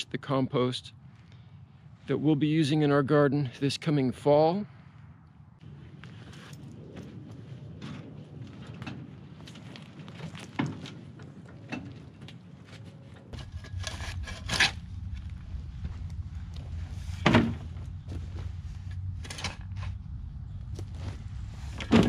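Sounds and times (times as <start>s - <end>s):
footsteps: 11.9s - 22.0s
shovel scraping into dirt: 13.4s - 14.9s.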